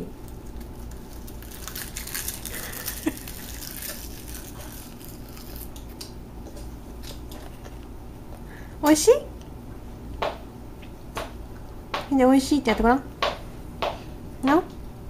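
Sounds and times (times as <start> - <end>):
child crunching seaweed: 0.2 - 6.2.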